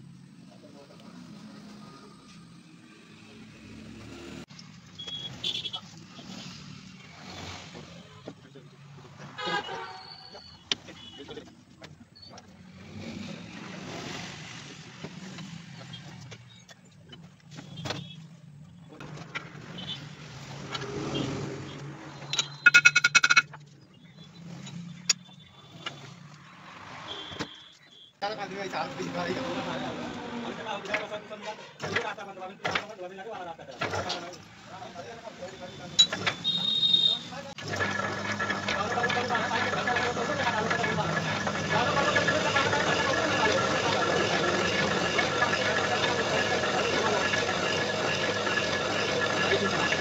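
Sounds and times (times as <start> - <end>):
short high-pitched beeps: 22.3 - 23.5
metal clinks and knocks: 22.3 - 23.7
motor humming: 37.6 - 50.0.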